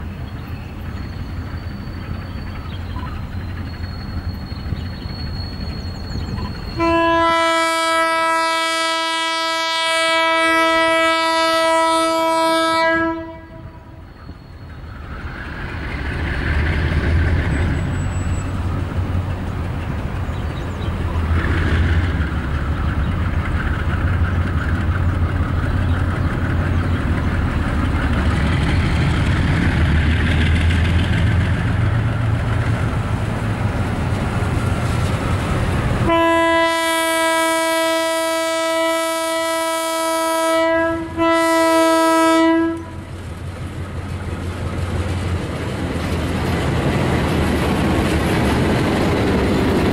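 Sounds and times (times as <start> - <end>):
diesel locomotive engines rumbling: 0.0 - 49.9
locomotive horn blast: 6.7 - 14.1, 36.0 - 43.1.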